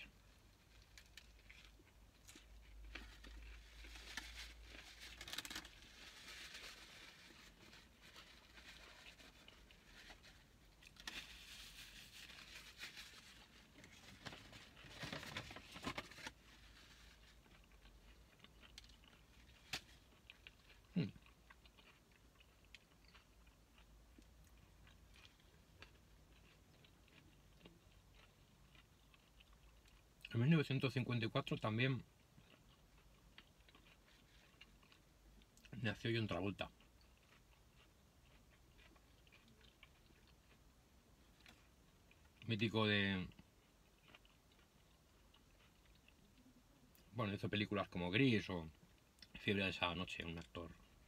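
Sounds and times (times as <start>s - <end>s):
chewing food: 0.0s - 30.4s, 31.5s - 47.2s
paper napkin crinkle: 11.0s - 17.1s.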